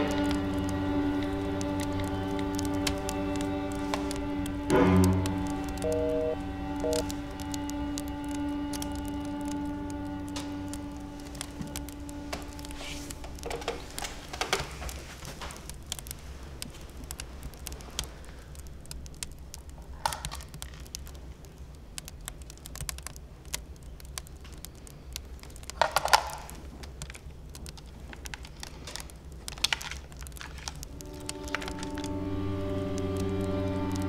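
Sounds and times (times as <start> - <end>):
low room hum: 0.0 - 34.0
fingers tapping a mobile phone: 5.7 - 7.6.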